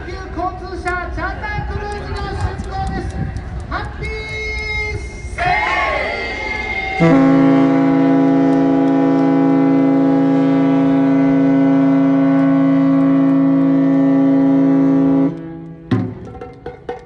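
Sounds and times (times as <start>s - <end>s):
ship's horn long deep blast: 7.0s - 15.9s
taiko drum strikes: 15.9s - 17.0s.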